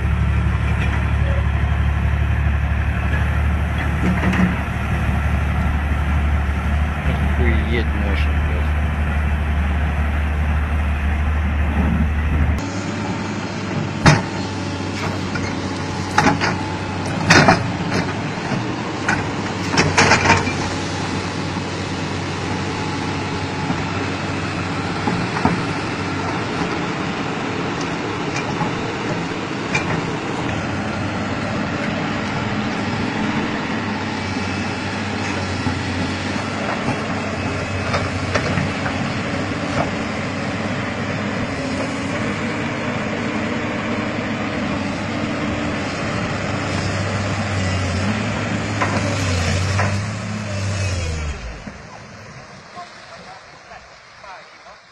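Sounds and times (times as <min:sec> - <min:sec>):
excavator diesel engine running: 0:00.0 - 0:54.9
sharp metal knocks and clanks: 0:19.1 - 0:20.7.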